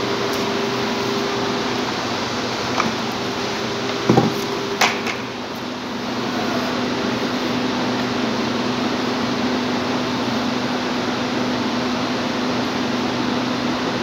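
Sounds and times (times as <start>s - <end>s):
machinery hum: 0.0s - 14.0s.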